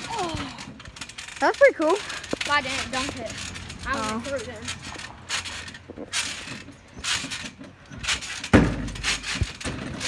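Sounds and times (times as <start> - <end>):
trampoline springs creaking: 0.0 - 10.0
heavy thump: 8.4 - 10.0.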